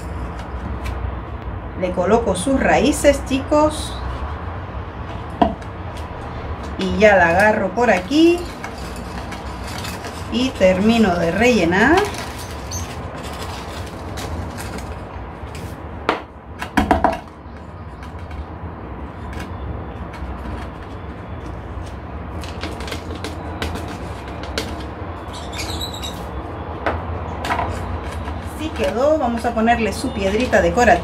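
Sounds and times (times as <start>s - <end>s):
knocks and scrapes: 7.9s - 15.8s.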